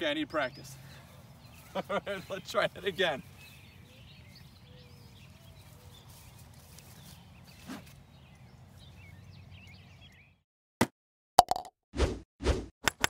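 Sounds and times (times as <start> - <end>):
birds chirping: 0.0 - 10.4
sharp plop: 11.4 - 11.7.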